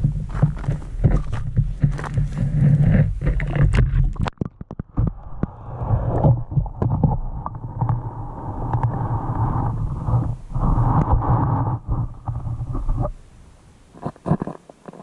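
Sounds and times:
clicks and bumps: 0:00.0 - 0:08.1
muffled underwater microphone hum: 0:00.0 - 0:15.0.

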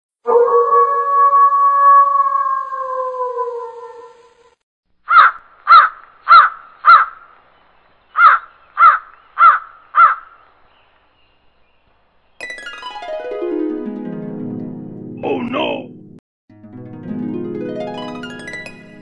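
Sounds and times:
crow cawing: 0:05.1 - 0:07.3, 0:08.2 - 0:10.5.

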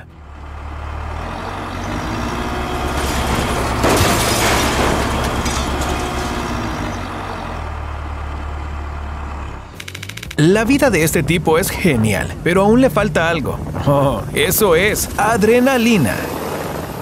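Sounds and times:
tractor engine running: 0:00.0 - 0:17.0
crash of falling stone: 0:02.9 - 0:06.7.

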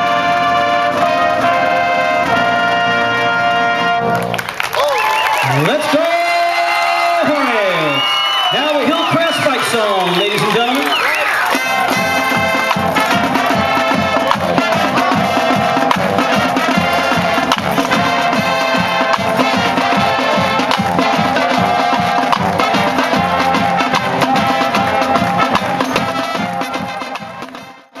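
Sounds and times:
music with percussive beat: 0:11.3 - 0:28.0.

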